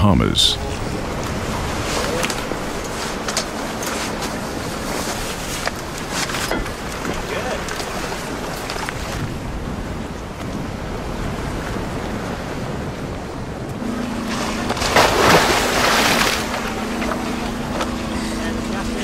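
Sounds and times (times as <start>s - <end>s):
steady low hum: 0.0s - 8.6s, 13.8s - 19.0s
sea noise: 0.0s - 19.0s
water rushing: 0.0s - 19.0s
wind: 0.0s - 19.0s.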